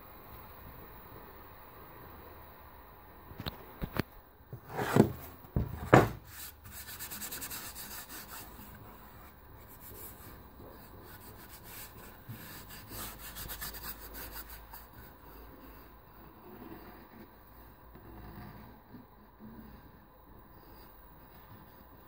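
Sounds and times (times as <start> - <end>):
hand rubbing across a board: 4.5 - 15.9.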